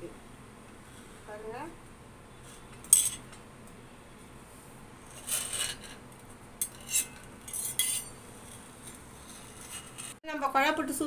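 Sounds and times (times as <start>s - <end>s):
metal scraping on steel plate: 5.1s - 6.0s, 6.6s - 10.2s.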